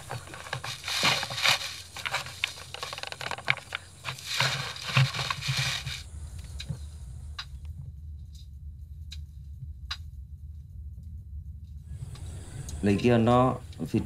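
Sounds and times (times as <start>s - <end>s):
camera handling rustle: 0.0s - 6.1s
scraping on rough rock: 0.0s - 6.1s.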